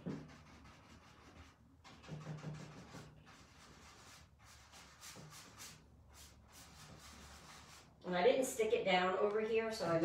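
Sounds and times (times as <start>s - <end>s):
brush strokes scratching: 0.0s - 8.0s.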